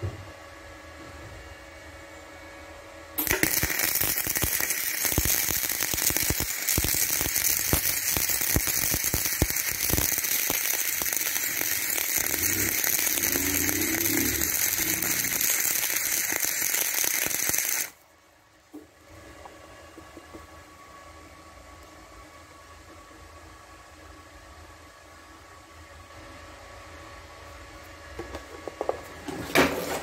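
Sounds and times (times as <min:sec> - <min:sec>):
welding arc crackling: 0:03.2 - 0:18.0.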